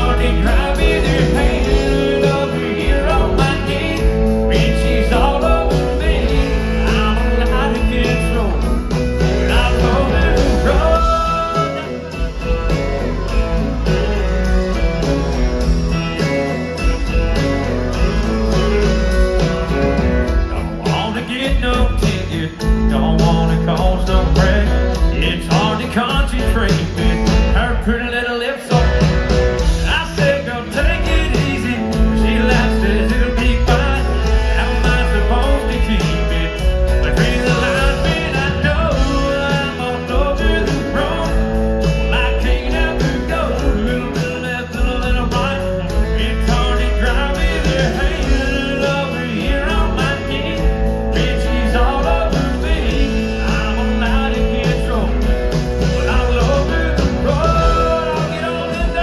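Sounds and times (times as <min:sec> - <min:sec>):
fiddle playing lead: 0:00.0 - 0:22.1, 0:23.6 - 0:59.0
live country band playing: 0:00.0 - 0:59.0.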